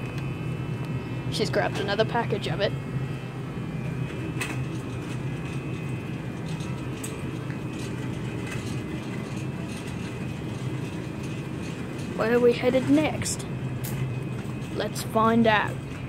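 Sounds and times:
shopping cart rolling and rattling: 3.9s - 16.0s.

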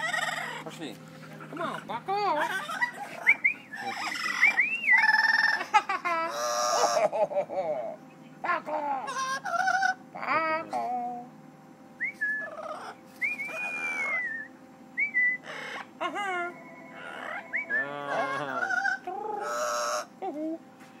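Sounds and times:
parrot whistling and squawking: 2.4s - 5.7s, 12.0s - 20.1s.

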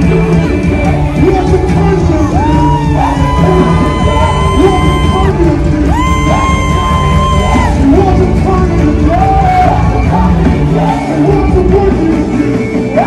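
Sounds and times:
full band playing worship music: 0.0s - 13.0s
audience singing along: 9.5s - 11.3s.

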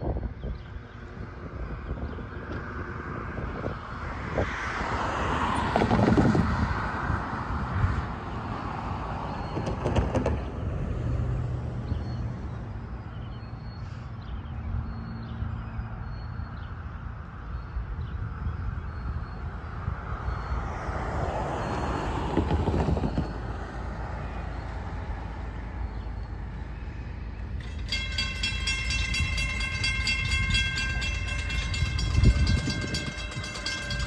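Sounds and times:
outdoor noise: 0.0s - 34.0s
car passing: 1.0s - 34.0s.

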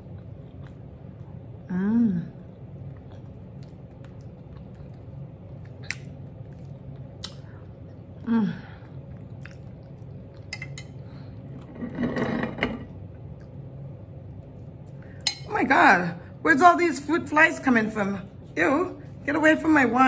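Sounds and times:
person chewing: 0.0s - 1.6s, 2.4s - 11.7s
wet mouth clicks: 7.1s - 7.6s.

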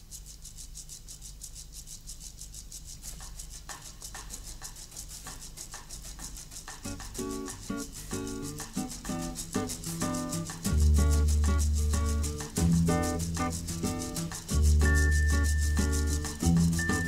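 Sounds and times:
shaker rhythm: 0.0s - 17.0s
background music melody: 6.8s - 17.0s.

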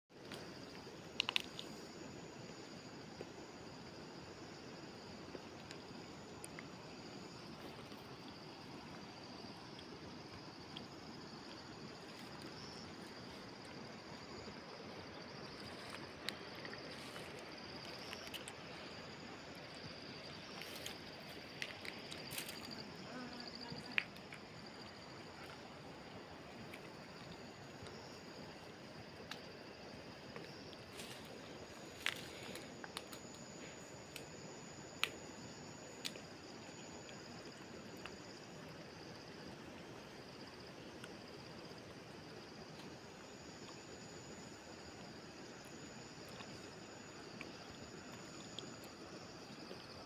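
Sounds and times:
insects trilling: 0.1s - 50.0s
soft steady hiss: 0.2s - 50.0s
faint clicks: 1.2s - 1.7s.

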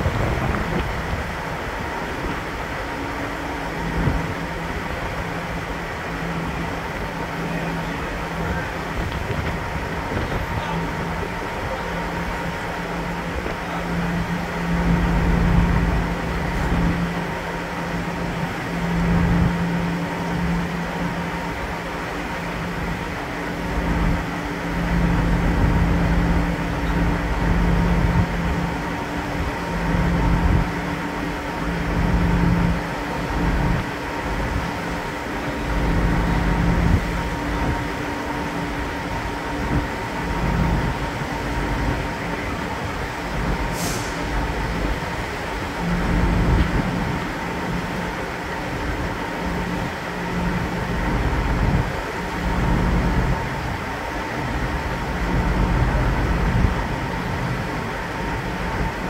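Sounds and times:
wind buffeting microphone: 0.0s - 2.9s, 8.2s - 21.5s, 23.7s - 59.0s
ship engines humming: 0.0s - 59.0s
brief hiss: 43.7s - 44.4s.

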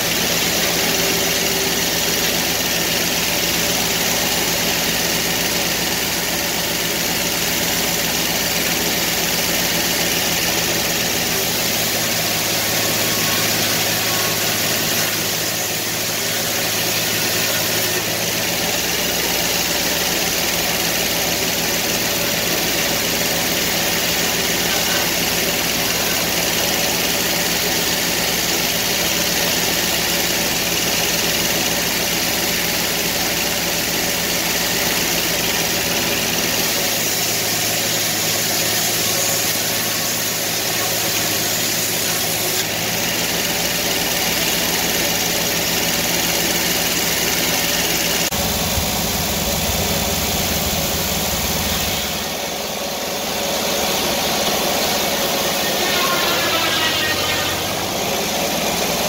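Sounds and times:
sawmill engine humming: 0.0s - 59.0s.

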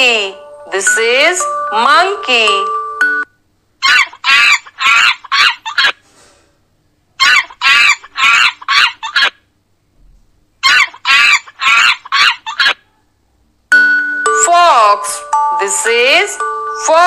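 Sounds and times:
monkey chattering calls: 7.2s - 9.4s, 10.6s - 12.8s.

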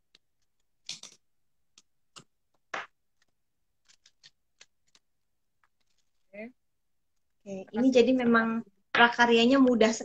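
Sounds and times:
paper rustling and clicking: 3.1s - 6.3s.

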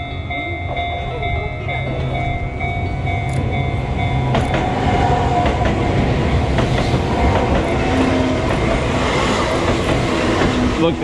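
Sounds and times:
train passing: 0.0s - 11.0s
wheels clacking over rail joints: 3.2s - 11.0s.

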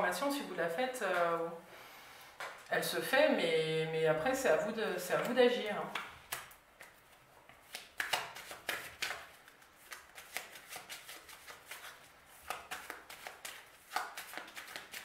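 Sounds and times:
cards being shuffled: 5.9s - 15.0s.

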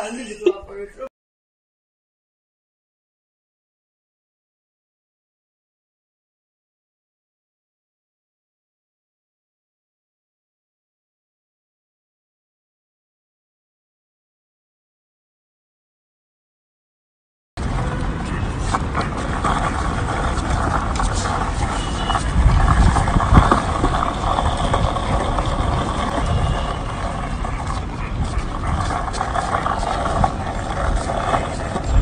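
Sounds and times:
skateboard wheels on paving: 17.6s - 32.0s.

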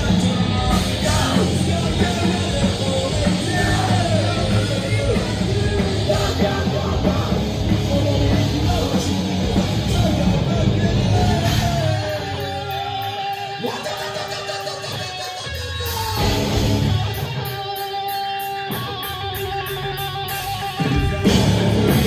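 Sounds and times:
person singing: 0.0s - 16.3s
drums: 0.0s - 22.0s
electric guitars: 0.0s - 22.0s
live rock band playing: 0.0s - 22.0s.

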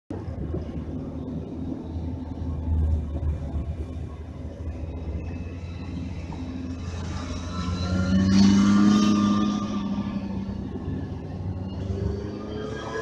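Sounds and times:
car engine and tyres rumbling: 0.1s - 13.0s.

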